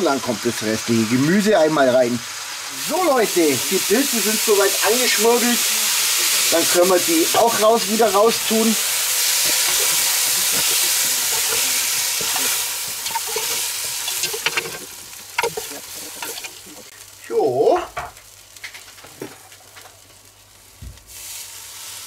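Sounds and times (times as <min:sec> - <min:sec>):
mushrooms sizzling in a pot: 0:00.0 - 0:22.0
metal spoon scraping a pot: 0:09.3 - 0:16.7.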